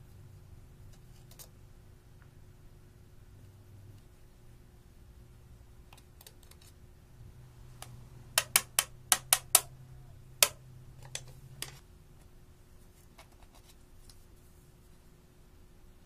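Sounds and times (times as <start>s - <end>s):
metal tool tapping plastic palette: 8.4s - 9.7s, 10.4s - 11.8s.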